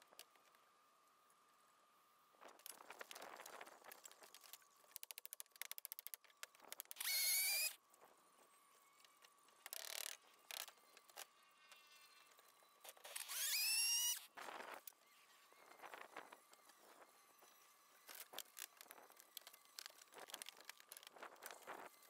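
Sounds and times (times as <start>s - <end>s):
power drill whining: 6.9s - 7.8s, 12.9s - 14.4s
fast clicks: 18.1s - 21.8s.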